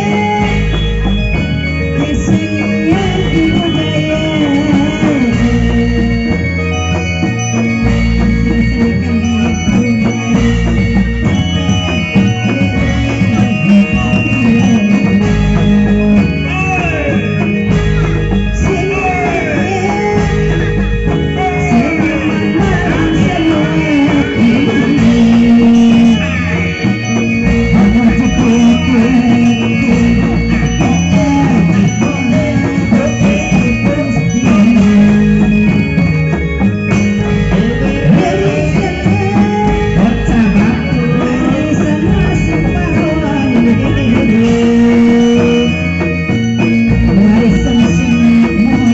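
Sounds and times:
drums with low tones: 0:00.0 - 0:48.9
sliding lead melody: 0:00.0 - 0:48.9.

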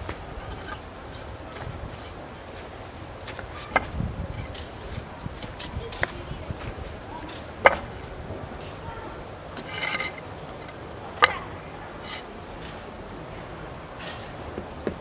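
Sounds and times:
wooden straightedge knocking: 0:00.4 - 0:02.2, 0:03.2 - 0:08.0, 0:09.6 - 0:12.3
straightedge scraping a wall: 0:00.4 - 0:02.6, 0:09.6 - 0:11.4, 0:12.0 - 0:12.3.

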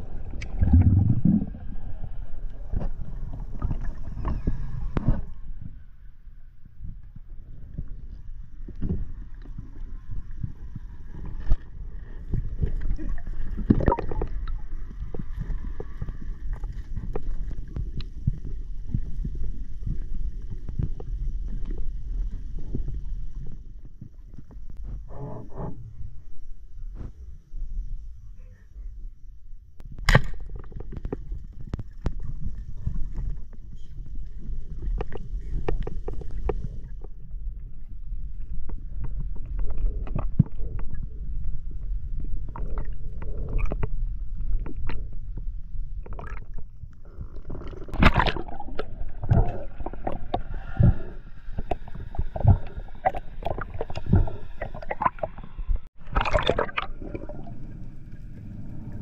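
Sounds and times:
water sloshing and gurgling: 0:00.0 - 0:06.1, 0:06.7 - 0:27.2, 0:29.9 - 0:59.0
steady low rumble: 0:00.0 - 0:59.0.

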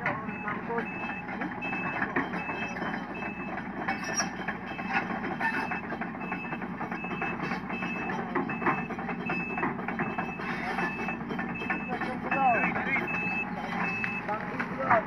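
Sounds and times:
excavator diesel engine: 0:00.0 - 0:15.0
backup alarm beeping: 0:00.1 - 0:15.0.

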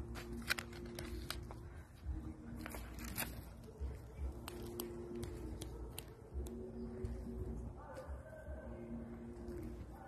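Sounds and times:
paper wrapper crinkling: 0:00.1 - 0:01.6, 0:02.6 - 0:03.8.

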